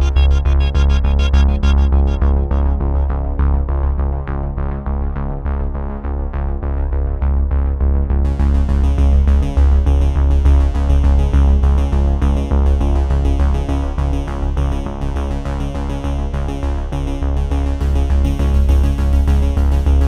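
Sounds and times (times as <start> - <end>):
electronic synthesizer music: 0.0 - 3.9.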